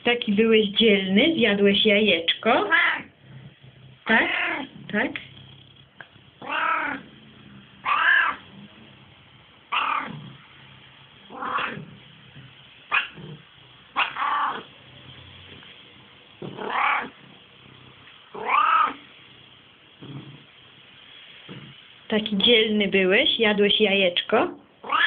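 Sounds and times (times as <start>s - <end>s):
cat meowing: 2.6s - 3.1s, 4.0s - 4.7s, 6.4s - 7.1s, 7.8s - 8.4s, 11.3s - 11.9s, 14.0s - 14.7s, 16.5s - 17.1s, 18.4s - 19.0s.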